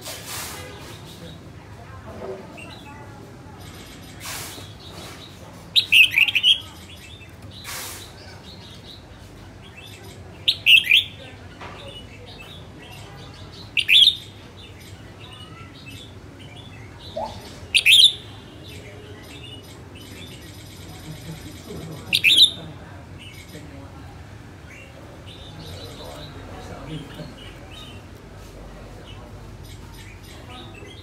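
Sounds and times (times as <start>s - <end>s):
bulbul singing: 3.6s - 23.8s.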